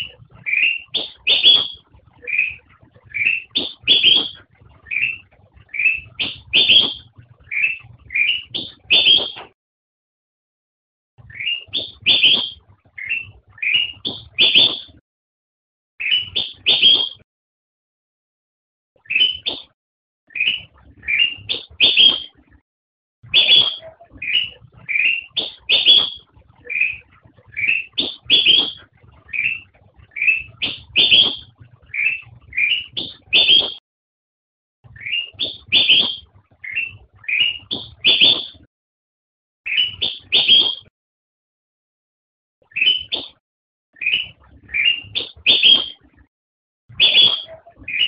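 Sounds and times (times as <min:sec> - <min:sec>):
bulbul singing whistled notes: 0:00.0 - 0:09.5, 0:11.3 - 0:14.9, 0:16.0 - 0:17.2, 0:19.0 - 0:19.7, 0:20.3 - 0:22.4, 0:23.3 - 0:33.8, 0:35.0 - 0:38.6, 0:39.7 - 0:40.9, 0:42.7 - 0:43.4, 0:44.0 - 0:46.0, 0:46.9 - 0:48.0.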